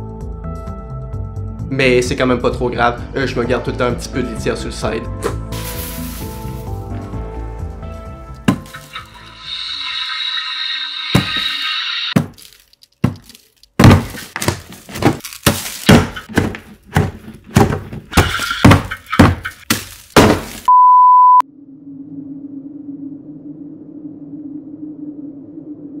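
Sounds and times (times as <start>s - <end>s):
music: 0.0s - 10.0s
hard thuds and knocks: 8.5s - 8.7s, 12.2s - 12.4s, 13.0s - 20.7s
high beep: 20.7s - 21.4s
low steady drone: 21.5s - 26.0s.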